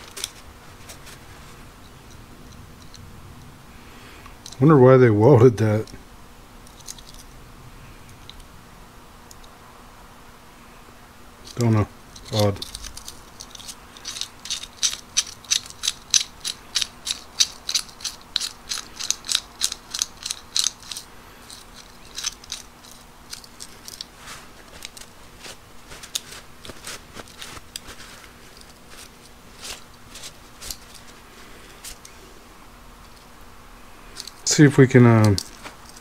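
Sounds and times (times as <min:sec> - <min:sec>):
locking wrench clicking: 0:12.2 - 0:24.1.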